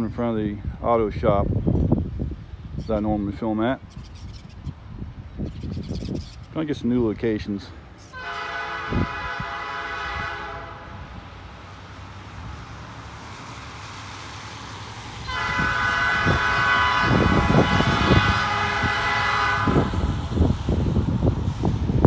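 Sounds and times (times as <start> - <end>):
locomotive air horn blasts: 8.1 - 11.2, 15.2 - 20.4.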